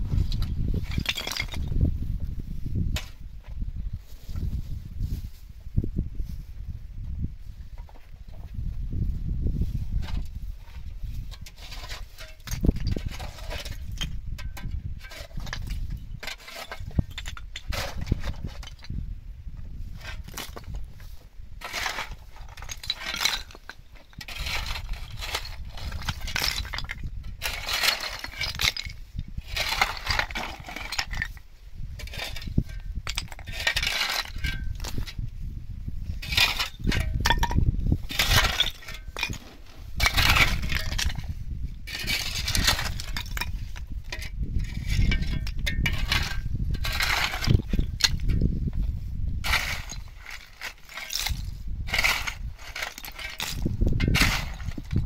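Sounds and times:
shovel scraping stony ground: 0:00.0 - 0:03.2, 0:09.6 - 0:19.0, 0:19.8 - 0:55.0
stone chips clinking: 0:00.9 - 0:01.6, 0:49.5 - 0:55.0.

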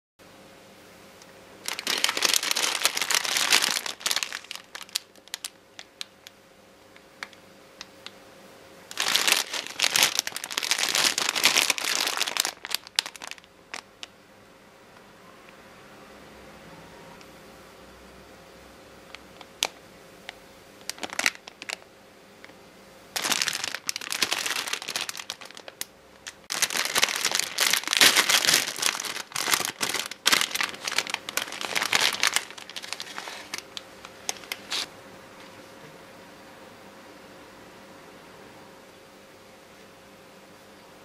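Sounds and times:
plastic wrapper crinkling: 0:01.6 - 0:06.4, 0:08.9 - 0:14.1, 0:20.8 - 0:21.8, 0:23.1 - 0:34.9.

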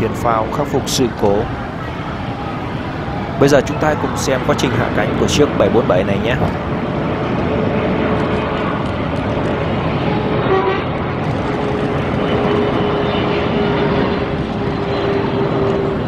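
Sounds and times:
jet engines roaring: 0:00.0 - 0:16.0
street traffic: 0:00.0 - 0:16.0
vehicle horn toot: 0:10.4 - 0:10.9.

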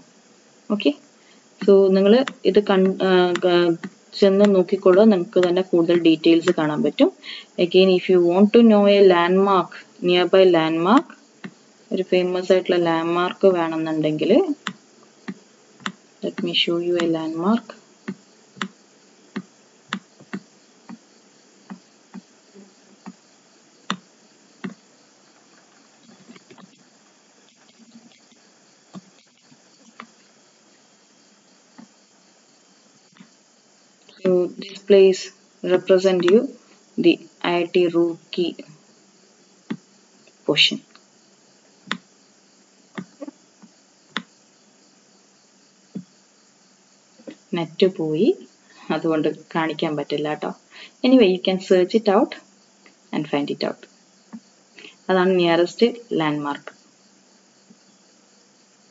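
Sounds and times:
faint steady hiss: 0:00.0 - 0:58.9
computer mouse clicking: 0:02.2 - 0:04.6, 0:18.1 - 0:18.8.

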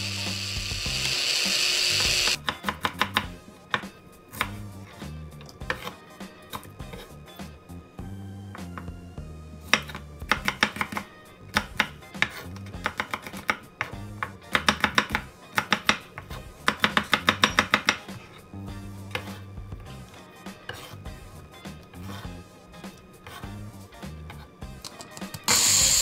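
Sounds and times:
background music: 0:00.0 - 0:26.0
knife chopping on wooden board: 0:09.7 - 0:18.3.

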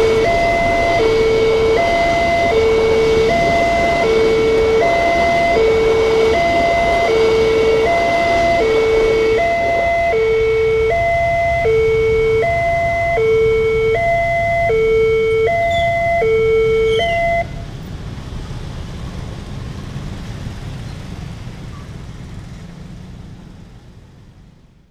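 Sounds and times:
two-tone warning siren: 0:00.0 - 0:17.7
motorcycle engines: 0:00.0 - 0:24.8.

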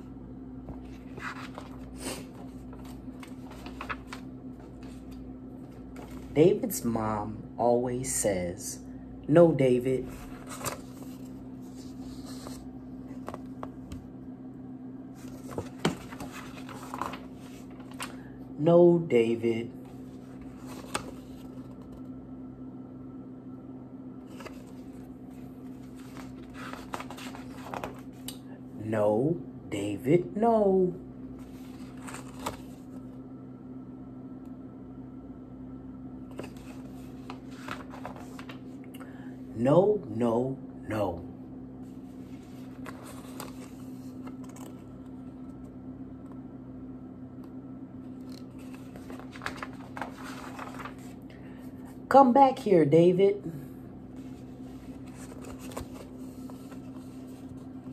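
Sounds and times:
low room hum: 0:00.0 - 0:57.9
book pages rustling: 0:00.6 - 0:06.6, 0:10.0 - 0:14.1, 0:15.1 - 0:18.3, 0:19.8 - 0:22.1, 0:24.2 - 0:28.3, 0:31.4 - 0:33.2, 0:36.3 - 0:38.8, 0:41.8 - 0:45.7, 0:48.1 - 0:51.2, 0:54.1 - 0:57.9
book rustling and tapping: 0:10.5 - 0:14.1, 0:15.2 - 0:18.2, 0:25.8 - 0:28.3, 0:36.3 - 0:38.7, 0:48.2 - 0:51.2.

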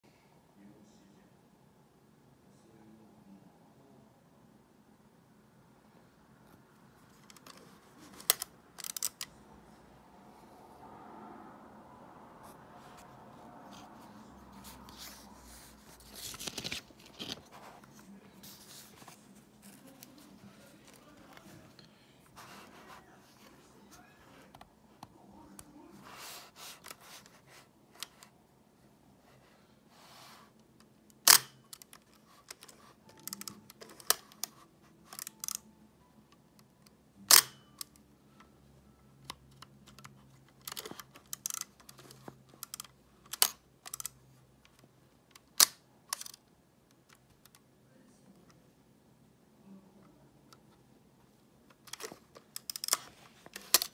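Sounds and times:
handling rustle: 0:13.7 - 0:24.0.

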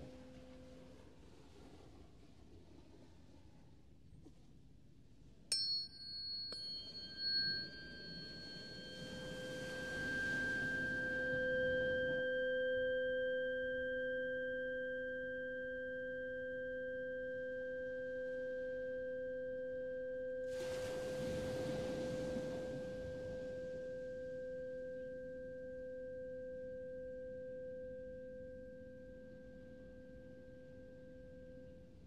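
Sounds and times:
tuning fork metallic clink: 0:05.5 - 0:20.6
tuning fork ringing tone: 0:05.5 - 0:32.0
lower sustained tone: 0:05.6 - 0:32.0.

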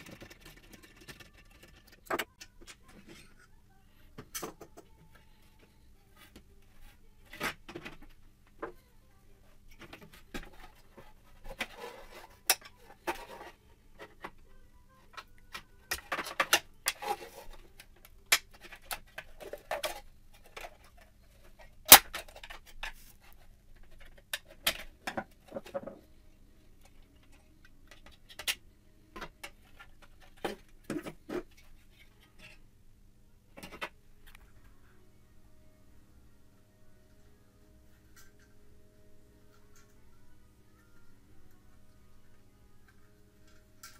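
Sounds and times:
plastic parts clicking and scraping: 0:00.0 - 0:03.5, 0:09.7 - 0:14.5, 0:15.1 - 0:26.2, 0:26.8 - 0:32.7.

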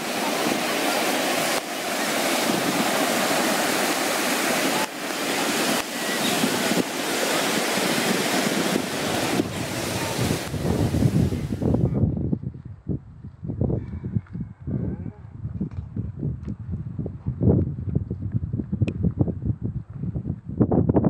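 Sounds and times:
surf washing onto beach: 0:00.0 - 0:11.8
wind on microphone: 0:00.0 - 0:21.0.

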